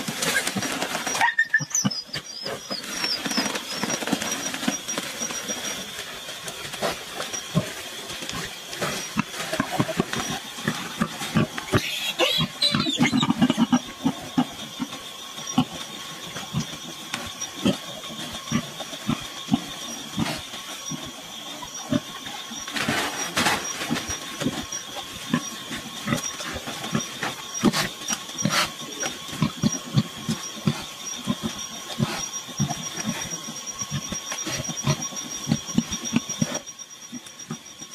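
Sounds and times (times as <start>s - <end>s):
night insects droning: 0.0s - 37.9s
sow grunting: 8.9s - 14.4s.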